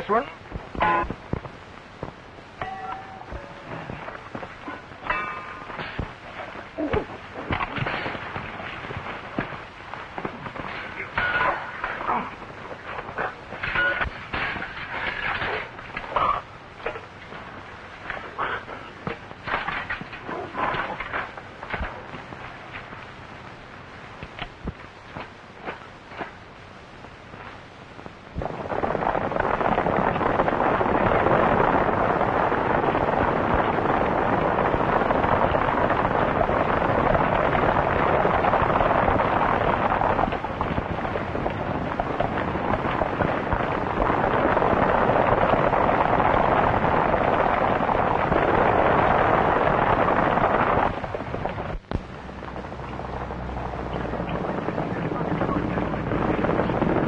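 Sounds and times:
horses galloping: 1.2 - 23.2.

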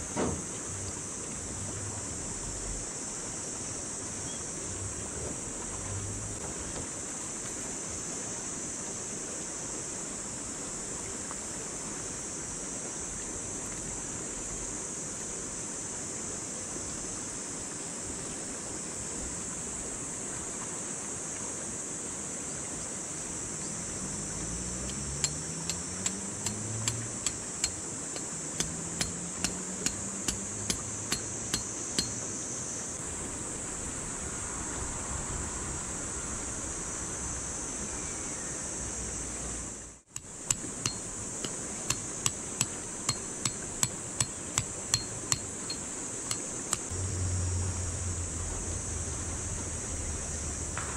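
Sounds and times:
tent peg hammered into ground: 24.9 - 32.2, 40.1 - 46.9.

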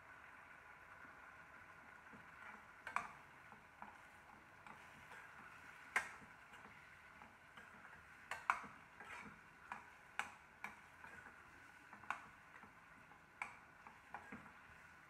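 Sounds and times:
spatula scraping steel pan: 7.6 - 9.4.

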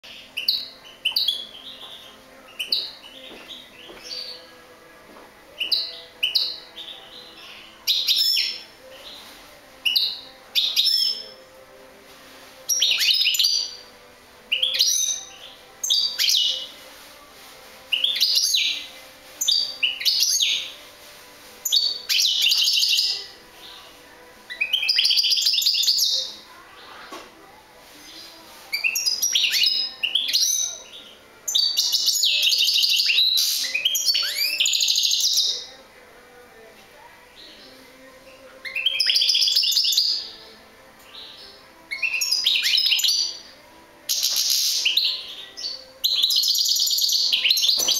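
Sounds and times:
finch twittering song: 0.0 - 4.6, 5.5 - 11.4, 12.7 - 13.9, 14.5 - 16.8, 17.9 - 20.8, 21.6 - 23.7, 24.5 - 26.4, 28.0 - 35.8, 38.7 - 43.5, 44.1 - 47.9.

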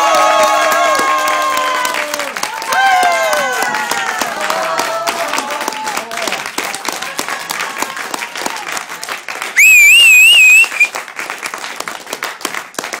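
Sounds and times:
spectators clapping: 0.0 - 13.0
shrill wavering whistle: 9.6 - 10.9.

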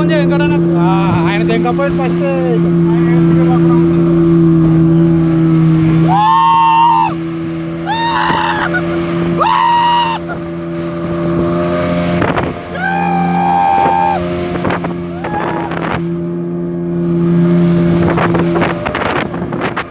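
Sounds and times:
hull rushing through water: 0.0 - 19.9
speedboat engine droning: 0.0 - 19.9
people shouting with excitement: 6.1 - 7.2, 7.8 - 10.4, 12.7 - 14.2
wind buffeting microphone: 7.0 - 16.2, 17.6 - 19.9.

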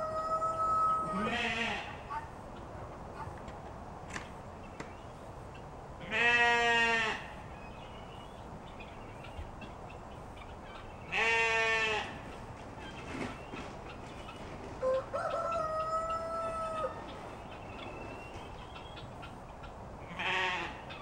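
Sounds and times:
sheep bleating: 1.0 - 2.0, 6.0 - 7.3, 11.1 - 12.2, 20.1 - 20.8.

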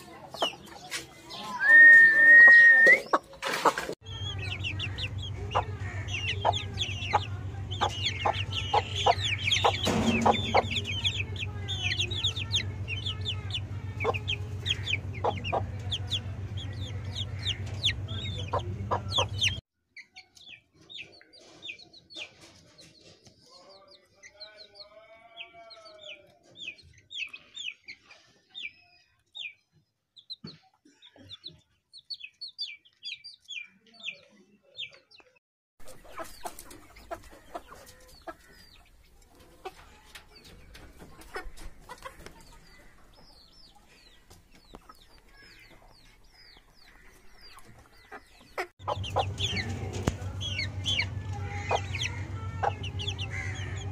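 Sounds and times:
chicks peeping and clucking: 0.0 - 53.9
steady low hum: 4.1 - 19.6, 48.8 - 53.9.

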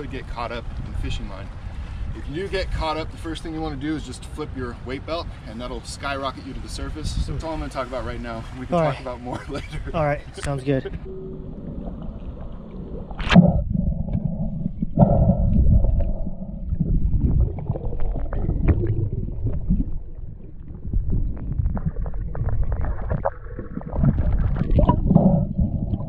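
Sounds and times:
muffled underwater rumbling wash: 0.0 - 26.0
water splash: 11.0 - 26.0.

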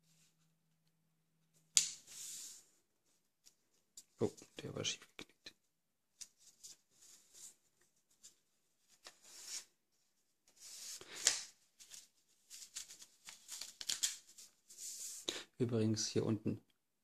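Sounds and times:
paper strip rustling and crinkling: 6.1 - 9.8, 10.4 - 15.3
sharp paper crackle: 11.0 - 14.8.

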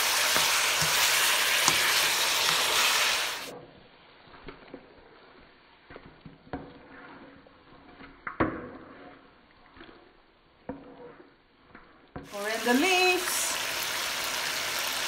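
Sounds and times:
spatula scraping a wok: 0.0 - 3.6, 4.2 - 12.2.

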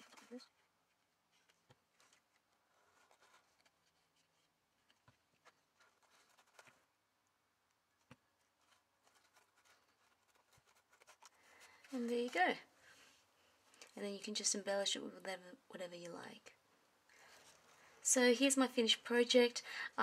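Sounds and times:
hands handling paper: 0.0 - 13.1.

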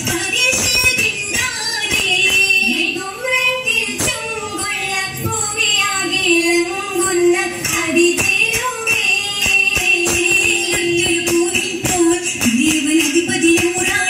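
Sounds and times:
rhythmic hand claps: 0.0 - 2.9, 6.4 - 14.0
women singing together: 0.0 - 14.0.

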